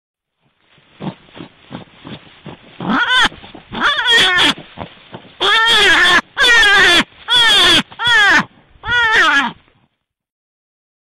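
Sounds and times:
high wavering animal calls: 2.8 - 4.7, 5.4 - 9.6.

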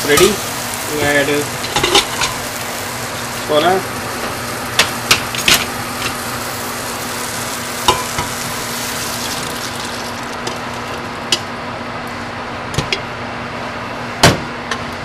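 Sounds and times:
food sizzling in pan: 0.0 - 11.7
liquid pouring into pan: 7.0 - 11.2.

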